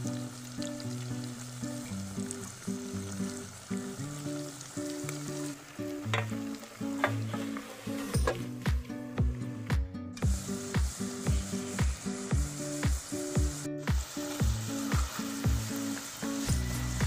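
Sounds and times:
fries sizzling in hot oil: 0.0 - 8.8, 10.2 - 17.0
background music with drum beat: 8.2 - 17.0.

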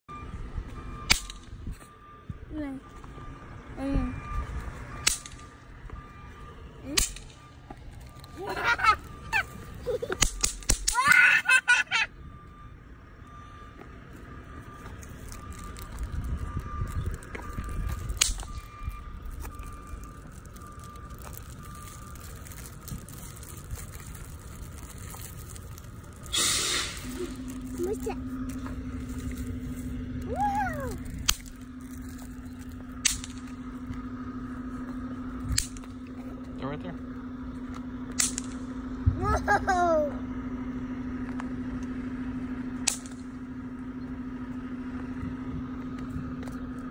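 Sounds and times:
snap pops cracking on asphalt: 1.1 - 1.6, 5.0 - 5.6, 10.0 - 11.2, 17.2 - 23.8, 33.0 - 33.6, 38.1 - 38.7, 42.8 - 43.3
child squealing: 10.9 - 12.0, 30.3 - 31.0
steady low hum: 13.9 - 46.9.

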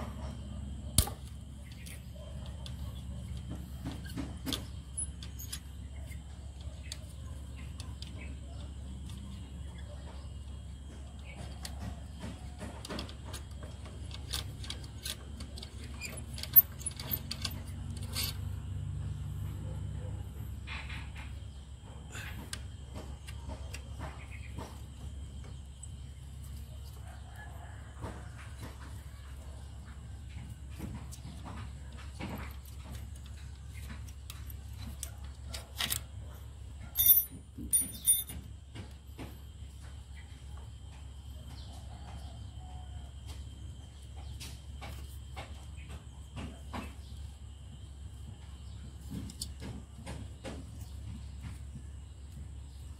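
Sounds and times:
clinking rattles: 12.8 - 18.9, 36.8 - 38.9.

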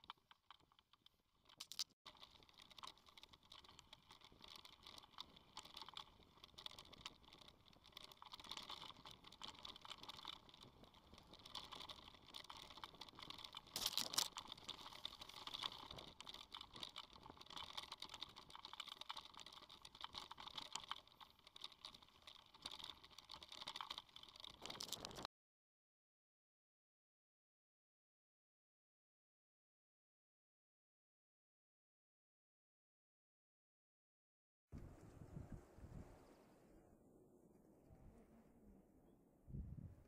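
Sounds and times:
bike tyres crunching on gravel: 2.1 - 25.3.

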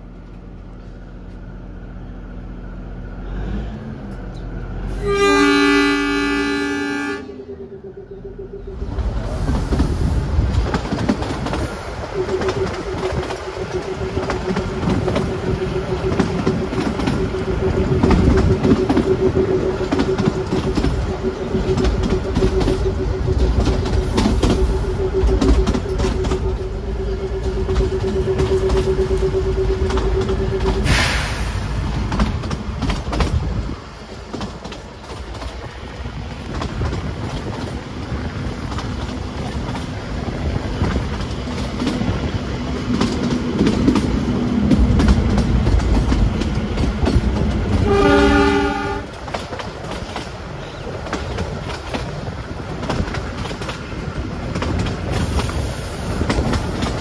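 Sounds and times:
train wheels rumbling and clicking: 0.0 - 57.0
train horn: 4.9 - 9.4, 11.8 - 31.8, 47.4 - 49.5.

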